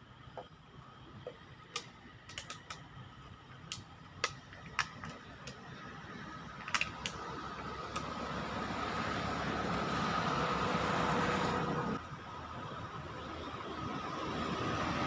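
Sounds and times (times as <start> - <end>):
sharp clicks and ticks: 1.2 - 2.9, 3.6 - 5.7, 6.5 - 8.2.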